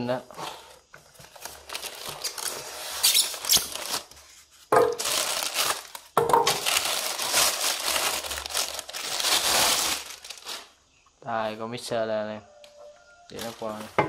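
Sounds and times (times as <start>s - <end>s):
plastic wrapping crinkling: 1.0s - 10.8s, 13.3s - 14.0s.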